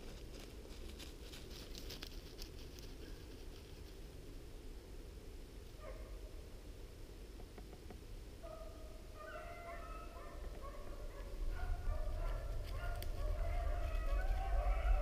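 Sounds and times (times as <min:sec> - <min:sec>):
hounds baying: 0:08.4 - 0:15.0.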